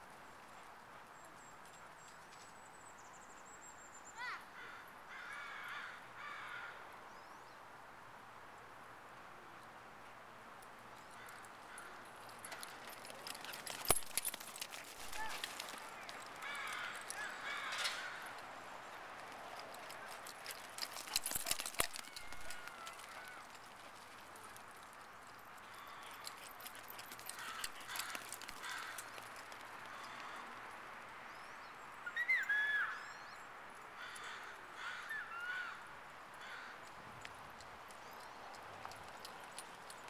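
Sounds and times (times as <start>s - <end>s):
high wavering bird calls: 32.0s - 33.3s.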